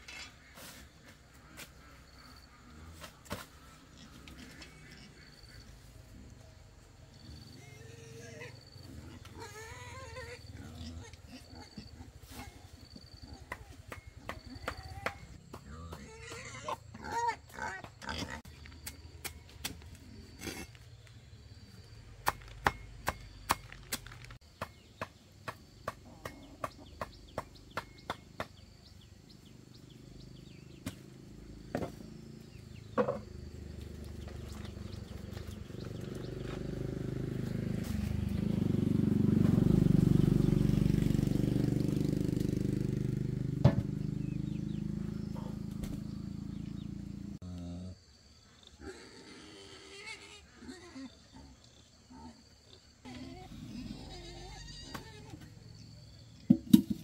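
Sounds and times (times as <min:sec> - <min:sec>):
machete chopping on wooden block: 0:22.2 - 0:28.6, 0:43.6 - 0:44.0.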